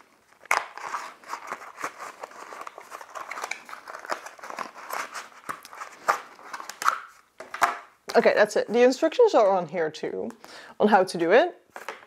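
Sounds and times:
cardboard and cable rustling: 0.0 - 8.3, 11.7 - 12.0.

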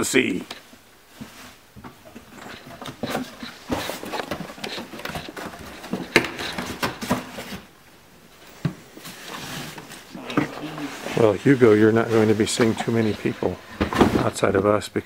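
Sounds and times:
boxes and bags rustling and knocking: 1.1 - 14.6.

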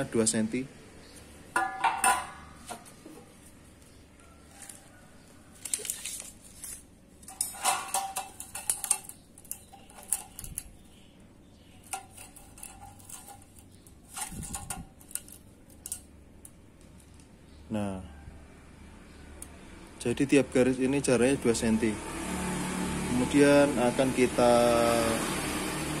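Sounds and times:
steel pipes clinking and scraping: 1.5 - 3.3, 7.2 - 11.0, 11.8 - 16.2.

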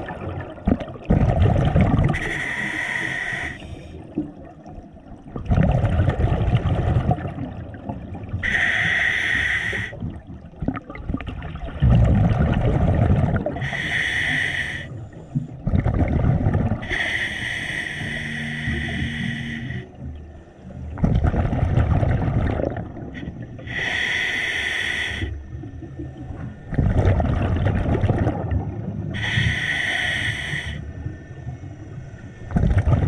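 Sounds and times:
exhaled air bubbling: 0.0 - 33.0
regulator breathing hiss: 2.1 - 4.0, 8.4 - 10.0, 13.6 - 15.5, 16.8 - 20.6, 23.2 - 25.4, 29.1 - 31.2.

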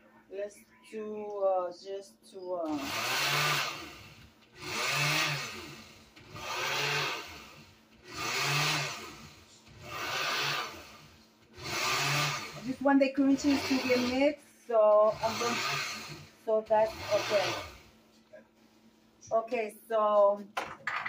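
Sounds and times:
blender motor pulsing: 2.6 - 18.0.

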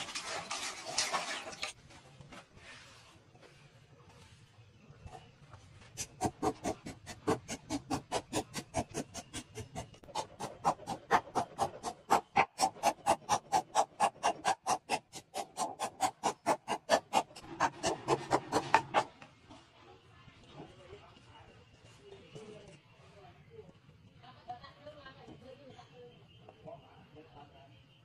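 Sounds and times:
wooden pestle pounding in clay mortar: 6.0 - 19.1.

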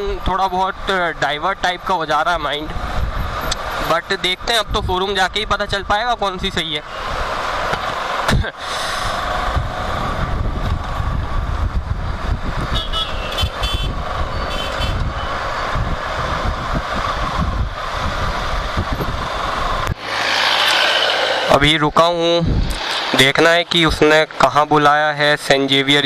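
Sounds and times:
wind buffeting microphone: 2.3 - 20.0, 21.5 - 22.9
motorcycle engine: 6.8 - 24.8.

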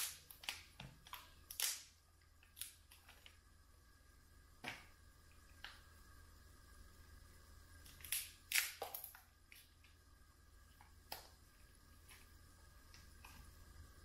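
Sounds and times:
faint low hum: 0.0 - 14.0
lobster shell cracking: 1.4 - 1.8.

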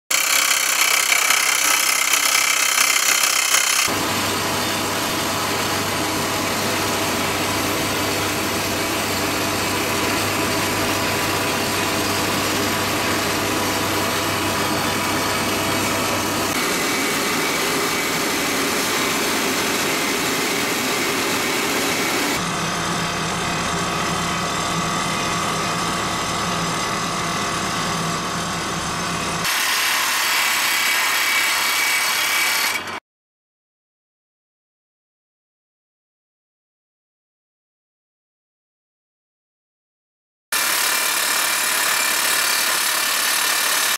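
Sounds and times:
rock drill rig drilling: 0.1 - 4.0, 40.6 - 43.9.

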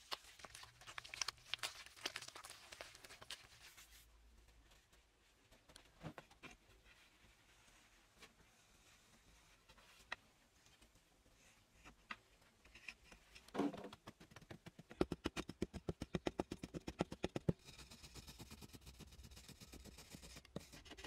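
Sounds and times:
stick scraping clay wall: 12.6 - 21.0.

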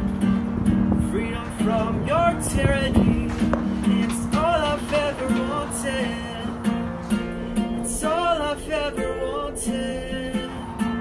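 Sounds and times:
acoustic guitar strumming: 0.0 - 11.0
person singing: 7.5 - 11.0.

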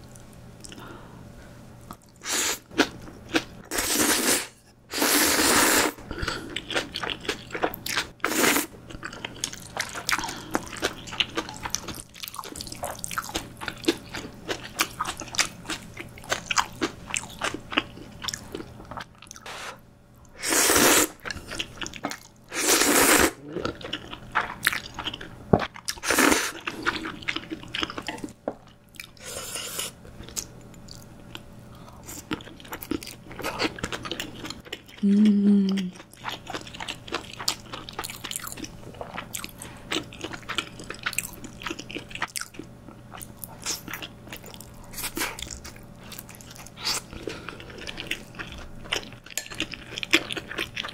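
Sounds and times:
slurping noodles: 3.7 - 6.0, 20.4 - 21.2, 22.5 - 23.4.

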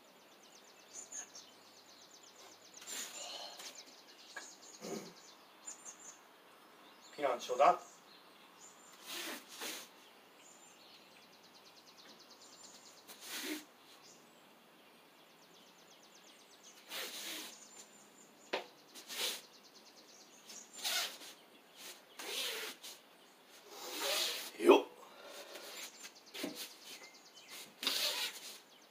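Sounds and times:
forceful breathing: 2.8 - 3.8, 23.6 - 26.0.

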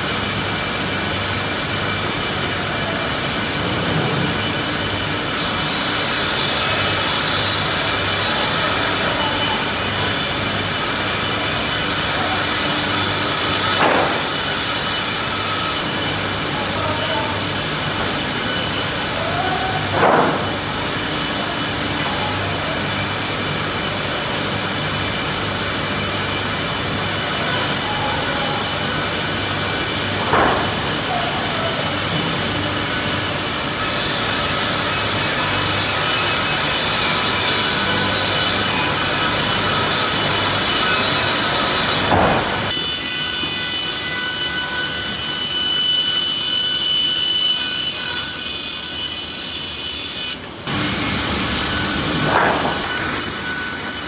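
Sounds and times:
saw blades cutting wood: 1.2 - 21.8, 28.6 - 54.0.

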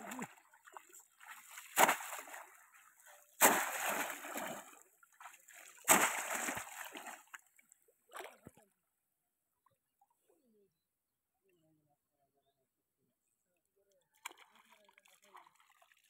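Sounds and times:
water sloshing: 0.0 - 8.6
fish trap splashing into water: 1.2 - 2.5, 3.4 - 4.8, 5.6 - 7.3.

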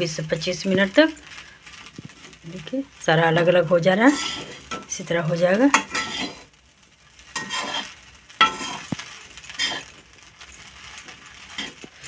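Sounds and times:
metal spatula scraping a pan: 3.2 - 12.0.

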